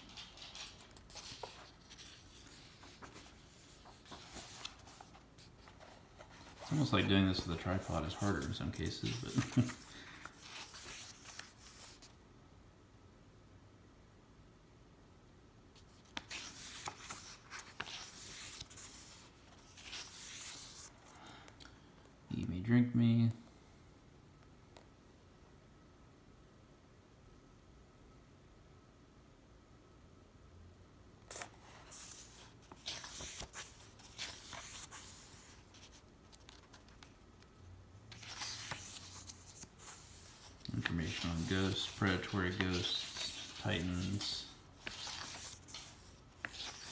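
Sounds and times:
book pages rustling: 0.0 - 12.2, 15.8 - 21.1, 31.3 - 46.9.

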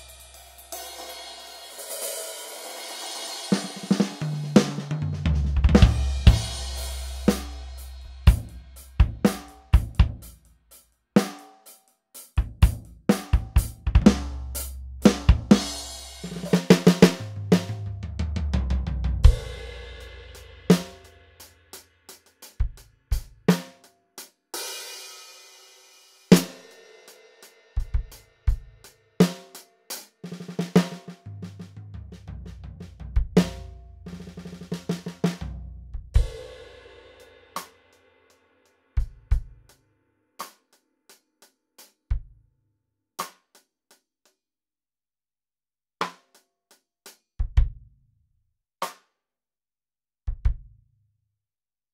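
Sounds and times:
cymbal crashes: 0.0 - 4.0
electronic drum kit playing: 0.0 - 10.4, 12.4 - 21.0.

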